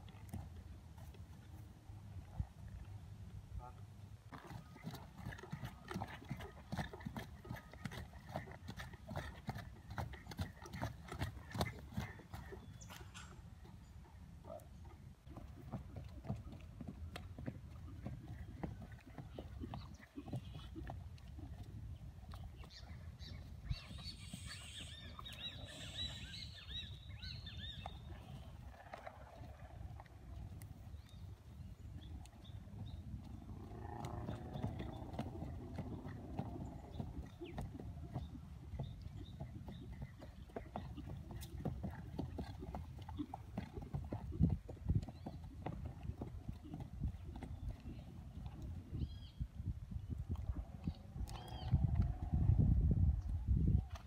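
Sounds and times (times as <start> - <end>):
horse hooves trotting on dirt: 0.0 - 3.3, 4.3 - 54.0
birds chirping: 9.9 - 15.0, 18.2 - 28.8, 30.8 - 43.3.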